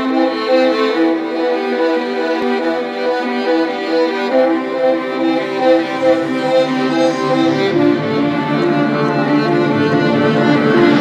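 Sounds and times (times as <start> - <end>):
bowed strings melody: 0.9 - 11.0
low held string note: 5.1 - 9.7.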